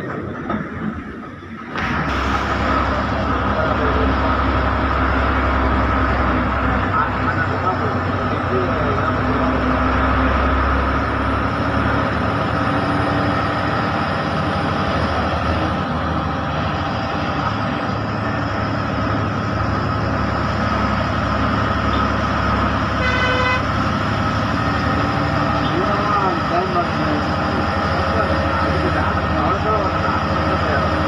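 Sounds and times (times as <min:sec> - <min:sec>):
bus engine and road noise: 0:00.0 - 0:31.0
horn honking: 0:22.9 - 0:23.8.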